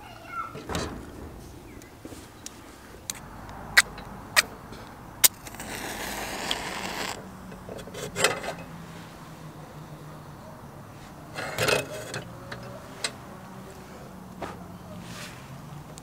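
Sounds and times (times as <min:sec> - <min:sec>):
match scratching: 0:05.2 - 0:07.2
match flame hissing: 0:05.2 - 0:07.3.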